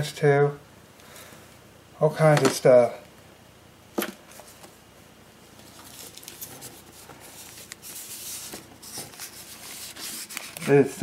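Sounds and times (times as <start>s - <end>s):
paper banknotes rustling: 5.6s - 11.0s.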